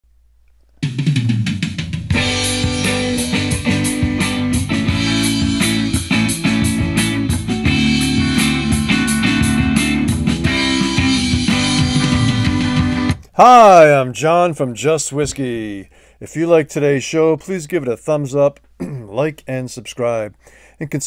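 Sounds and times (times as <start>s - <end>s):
rock guitar: 0.8s - 13.3s
drum kit beat: 0.8s - 13.5s.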